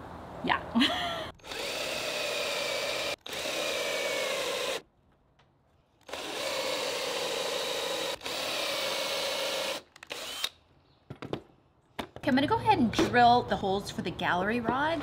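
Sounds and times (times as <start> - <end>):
cordless drill whining: 1.4 - 4.8, 6.0 - 10.6.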